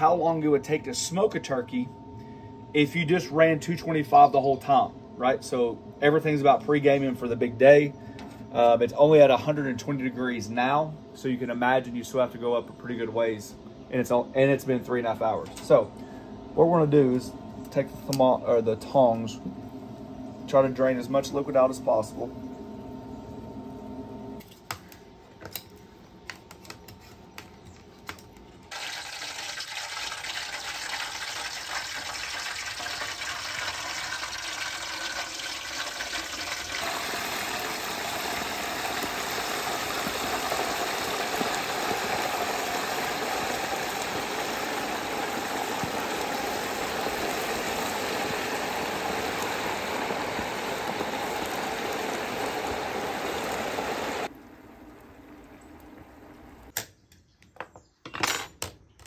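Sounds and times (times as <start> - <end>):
turkey sizzling in hot oil: 28.7 - 54.3.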